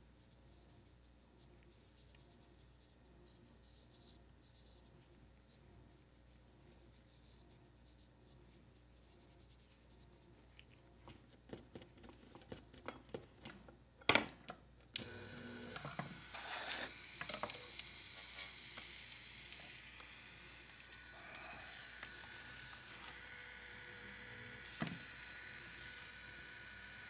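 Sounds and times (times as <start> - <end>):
rotary tool whining: 15.0 - 27.0.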